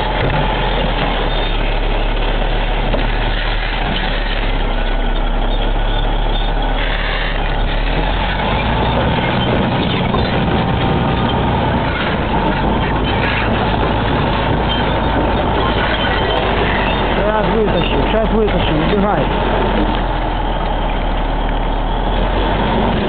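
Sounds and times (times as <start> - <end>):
large engine humming: 0.0 - 23.0.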